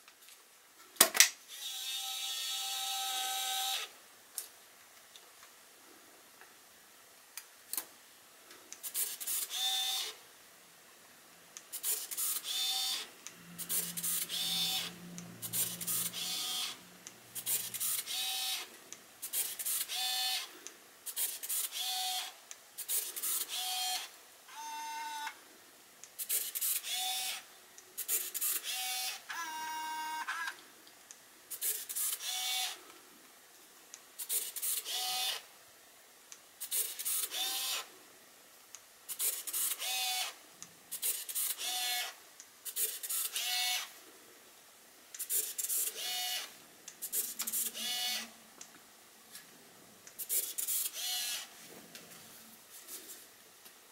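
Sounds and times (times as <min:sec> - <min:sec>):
camera motor whirring: 0:01.5 - 0:03.9, 0:08.8 - 0:10.2, 0:11.7 - 0:16.8, 0:17.4 - 0:20.5, 0:21.1 - 0:25.3, 0:26.2 - 0:30.6, 0:31.5 - 0:32.8, 0:34.2 - 0:35.5, 0:36.6 - 0:37.9, 0:39.1 - 0:43.9, 0:45.2 - 0:48.3, 0:50.2 - 0:51.5.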